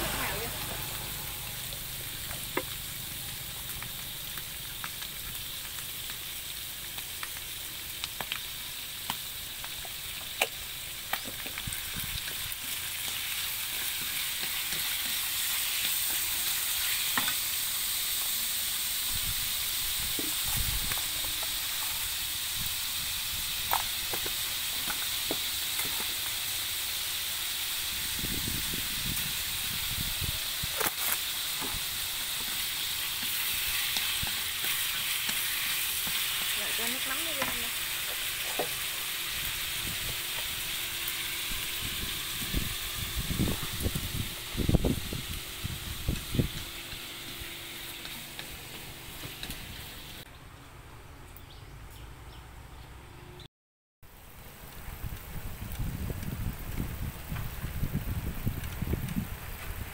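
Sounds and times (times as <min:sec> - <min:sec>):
food sizzling in a pan: 0:00.0 - 0:50.3.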